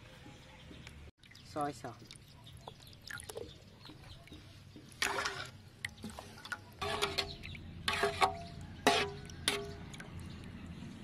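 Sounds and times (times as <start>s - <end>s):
metal spoon scraping metal pan: 5.0s - 5.6s, 6.8s - 9.8s.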